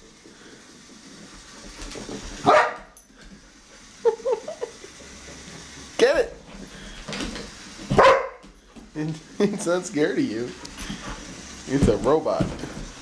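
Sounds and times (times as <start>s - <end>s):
dog yipping: 2.5s - 2.8s, 8.0s - 8.4s
dog barking: 2.5s - 2.9s, 7.9s - 8.4s.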